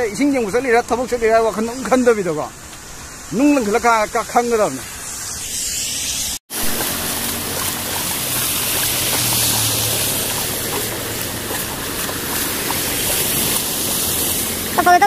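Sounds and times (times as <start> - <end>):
rain and floodwater rushing: 6.5 - 15.0
passing scooter engine hum: 6.6 - 15.0.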